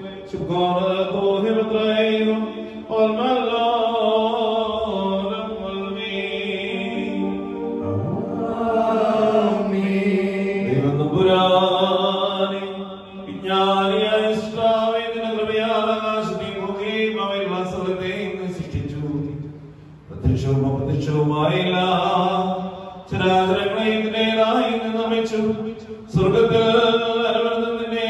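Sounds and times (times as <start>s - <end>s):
priest chanting into a microphone: 0.0s - 19.4s.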